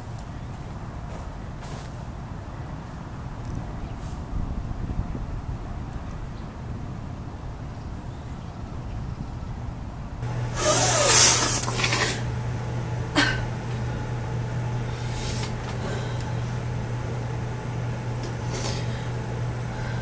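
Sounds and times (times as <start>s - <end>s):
low wind-like rumble: 0.0s - 10.3s
low electrical hum: 0.0s - 20.0s
sharp sniff: 10.6s - 11.7s.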